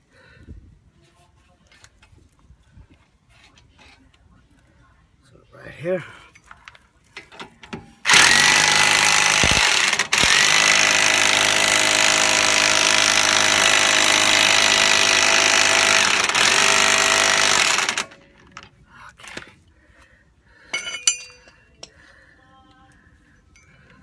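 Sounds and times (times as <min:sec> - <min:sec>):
electric impact wrench running: 0:08.1 - 0:18.6.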